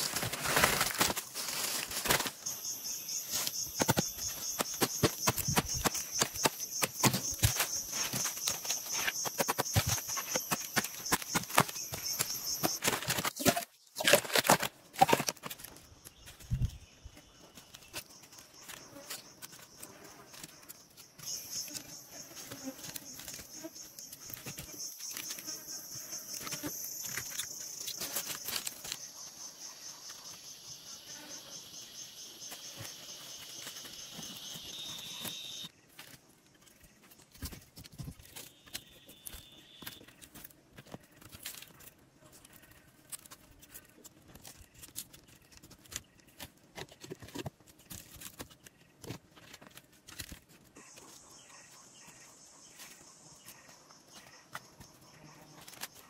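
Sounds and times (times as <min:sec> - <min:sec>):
insects chirping: 0:00.0 - 0:56.0.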